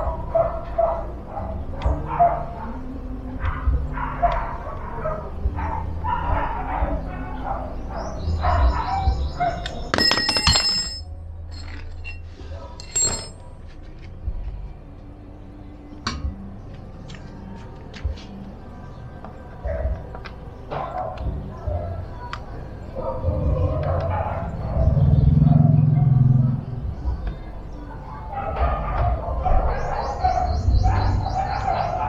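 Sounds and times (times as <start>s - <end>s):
metal clinks and clatter: 9.9s - 13.7s.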